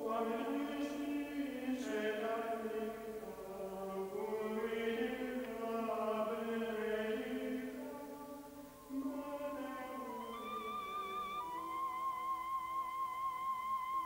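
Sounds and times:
slow choral chant: 0.0s - 14.0s
wavering high tone: 10.0s - 14.0s.

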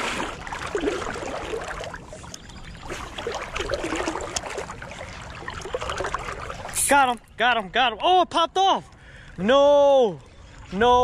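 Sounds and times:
water gurgling: 0.0s - 7.4s
river water flowing and lapping: 0.0s - 11.0s.

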